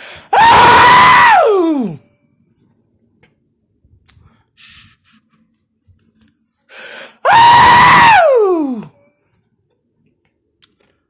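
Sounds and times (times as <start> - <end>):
man screaming loudly: 0.4 - 2.0, 7.3 - 8.8
sharp breath in: 4.3 - 5.3, 6.7 - 7.2.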